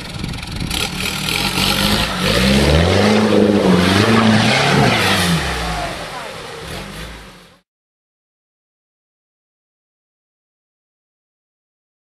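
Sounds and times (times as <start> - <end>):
engine revving hard: 0.7 - 7.6.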